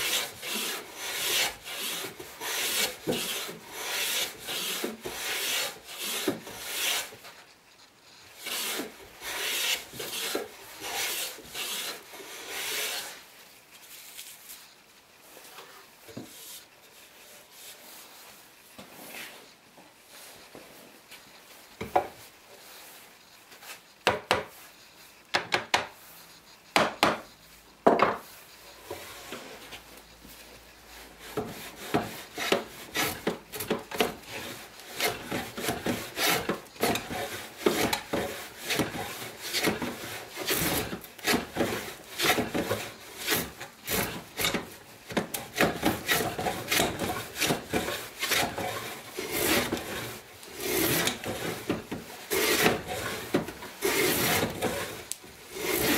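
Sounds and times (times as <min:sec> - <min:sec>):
plane rasping through wood: 0:00.0 - 0:07.3, 0:08.4 - 0:13.2, 0:30.9 - 0:55.9
sharp knocks on wood: 0:24.0 - 0:24.5, 0:26.8 - 0:27.2.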